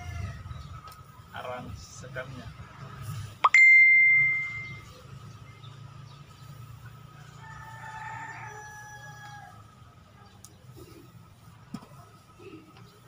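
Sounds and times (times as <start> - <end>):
rooster crowing: 0.0 - 0.5, 7.2 - 9.8.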